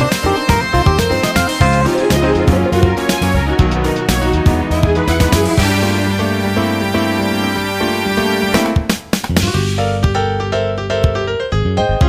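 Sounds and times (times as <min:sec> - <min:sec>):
instrumental background music: 0:00.0 - 0:12.0
sharp percussive hits: 0:08.5 - 0:09.8.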